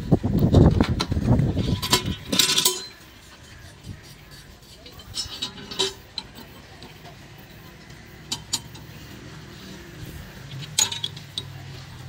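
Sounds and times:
metal clatter: 0.6 - 3.2, 4.7 - 7.2, 8.2 - 9.2, 10.5 - 12.0
metallic clinks of steel tools: 10.6 - 11.6.

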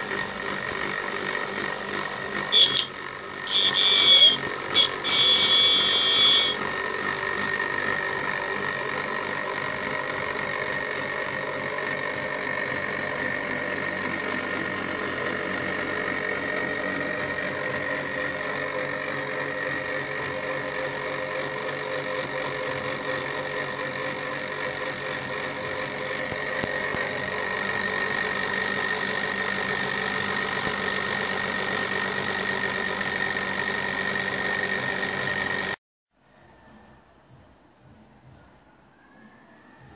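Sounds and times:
motor high whine: 0.0 - 35.8
motor low hum: 0.0 - 39.9
loud high-pitched sound: 2.5 - 6.6.

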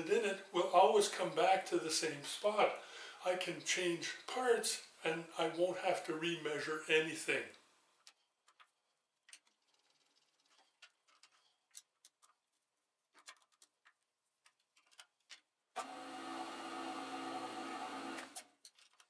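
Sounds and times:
mill spindle motor hum: 15.8 - 18.4.

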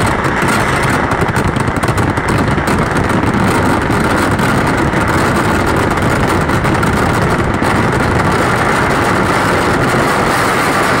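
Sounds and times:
fireworks barrage rumbling and crackling: 0.0 - 11.0.

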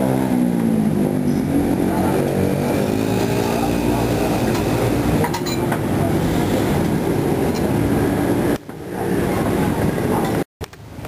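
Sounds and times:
vehicle engine running: 0.0 - 8.6
street traffic: 0.0 - 11.0.

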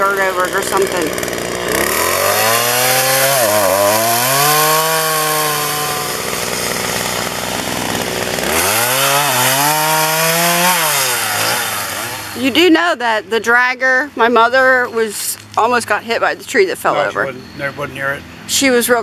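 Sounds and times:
chainsaw cutting wood: 0.0 - 12.8.

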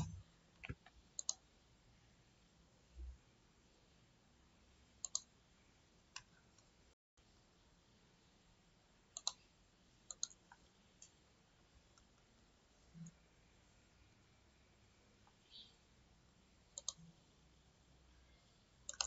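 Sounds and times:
mouse buttons clicking: 0.0 - 1.4, 5.0 - 5.3, 9.2 - 9.4, 10.1 - 11.2, 16.8 - 17.1.

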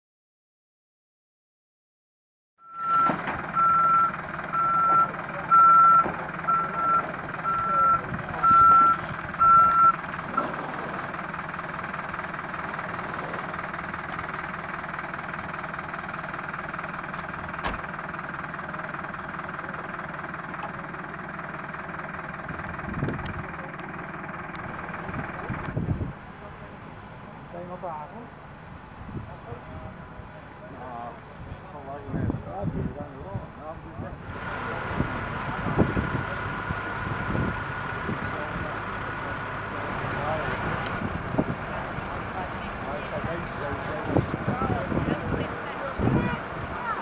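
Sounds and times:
reversing alarm beeping: 2.6 - 10.5
truck engine running: 2.8 - 47.0.

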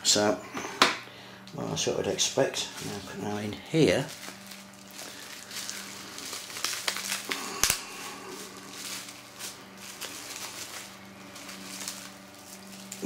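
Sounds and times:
bubble wrap rustling and crinkling: 2.7 - 13.0.

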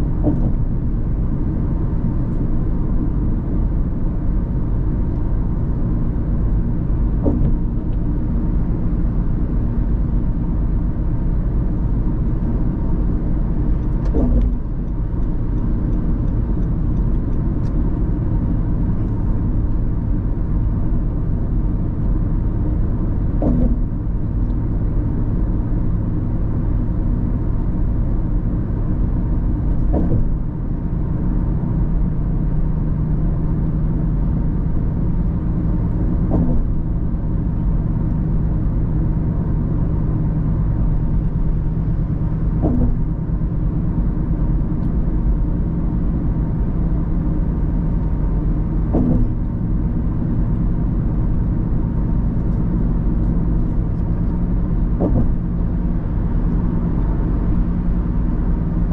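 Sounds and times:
car engine and tyre noise: 0.0 - 58.9
brief thumps: 0.2 - 0.8, 7.0 - 8.0, 13.6 - 15.6, 23.4 - 24.5, 29.6 - 30.8, 35.6 - 36.9, 40.8 - 44.0, 48.0 - 57.5.

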